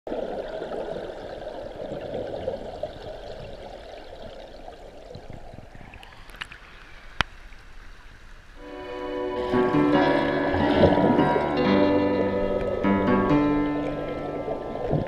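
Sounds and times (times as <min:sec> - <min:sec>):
turbulent river water rushing: 0:08.6 - 0:15.0.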